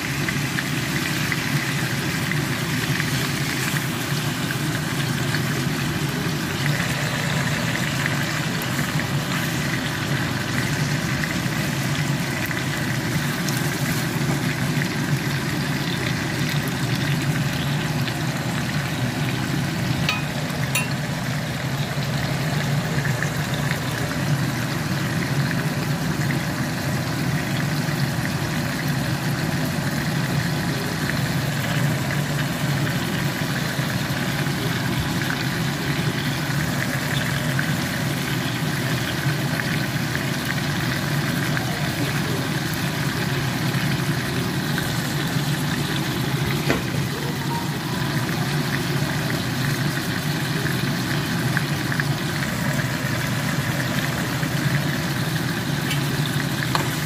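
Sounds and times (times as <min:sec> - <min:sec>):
steak sizzling in a pan: 0:00.0 - 0:57.0.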